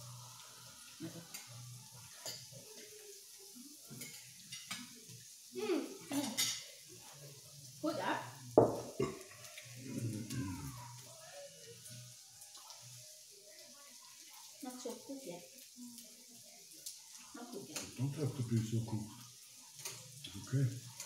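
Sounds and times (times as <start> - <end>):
meat sizzling on a grill plate: 0.0 - 21.0
chopsticks and cutlery clicking: 3.9 - 5.0, 17.7 - 18.0, 19.7 - 21.0.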